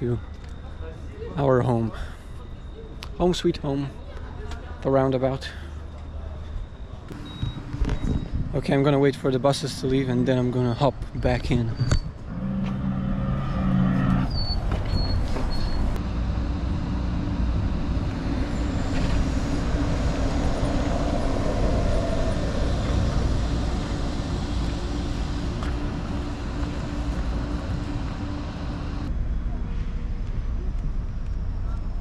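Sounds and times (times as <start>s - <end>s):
bus engines rumbling: 0.0s - 32.0s
short high beeps: 7.1s - 8.4s.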